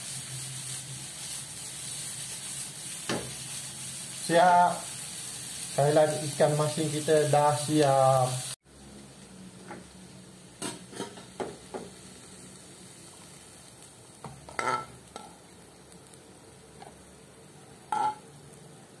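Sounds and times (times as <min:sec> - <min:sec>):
spatula scraping frying pan: 0:10.6 - 0:11.4, 0:14.5 - 0:15.2
pan clinking on plate: 0:14.5 - 0:15.3, 0:17.9 - 0:18.2.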